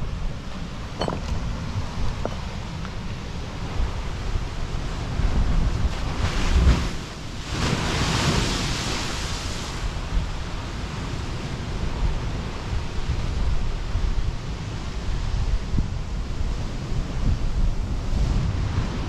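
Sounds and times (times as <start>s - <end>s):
sea waves crashing: 0.0s - 13.1s
wind rumbling on microphone: 0.0s - 19.0s.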